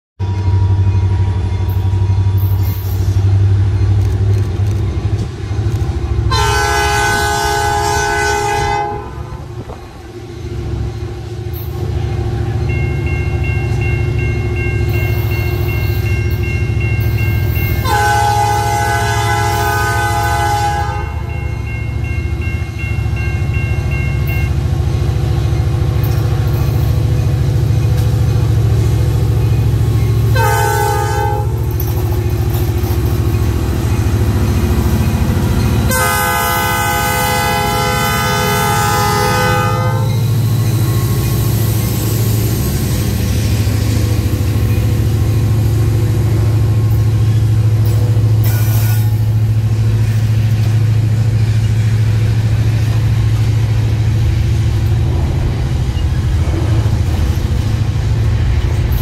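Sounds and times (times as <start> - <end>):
locomotive engine rumble: 0.2 - 59.0
train horn blasts: 6.3 - 9.8, 17.6 - 21.4, 30.2 - 31.8, 35.4 - 40.6.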